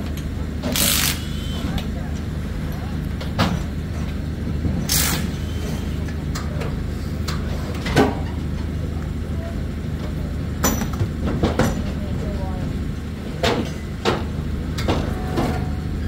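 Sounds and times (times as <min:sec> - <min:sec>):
large engine droning: 0:00.0 - 0:16.0.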